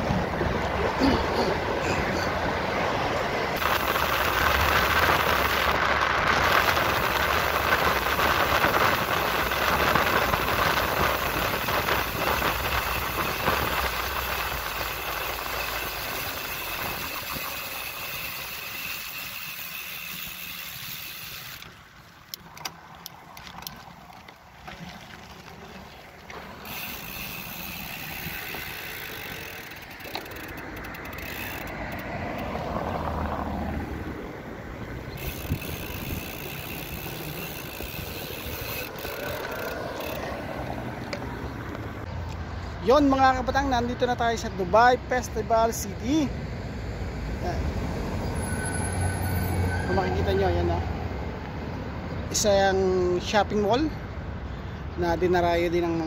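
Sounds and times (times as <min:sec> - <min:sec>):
wind noise from cycling: 0:00.0 - 0:42.8
highway traffic noise: 0:00.0 - 0:56.0.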